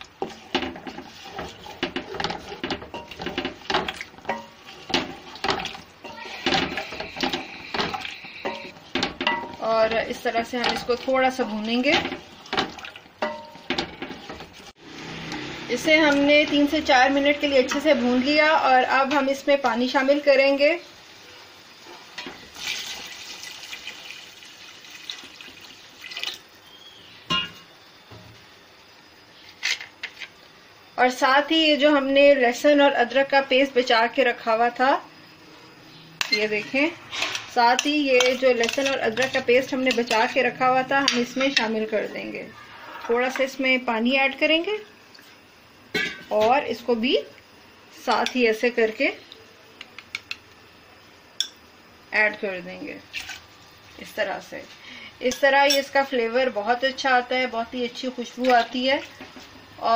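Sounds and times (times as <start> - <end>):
wooden spoon knocking pot: 0.2 - 14.6.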